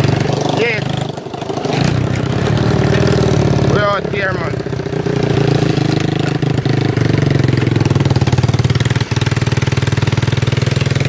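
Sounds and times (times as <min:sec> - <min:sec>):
small go-kart engine running: 0:00.0 - 0:11.0.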